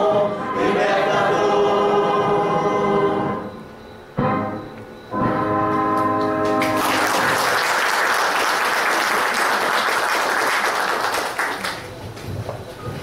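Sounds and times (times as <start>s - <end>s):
music: 0.0s - 7.1s
audience applauding: 5.8s - 12.0s.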